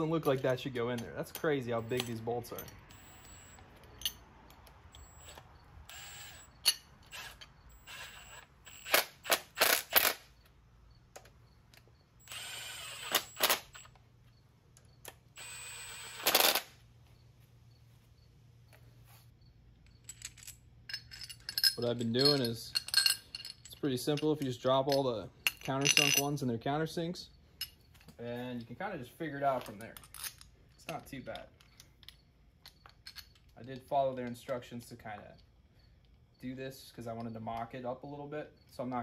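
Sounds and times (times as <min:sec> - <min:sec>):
power tool driving bolts: 0:04.9 - 0:10.3, 0:12.2 - 0:13.9, 0:15.4 - 0:16.8.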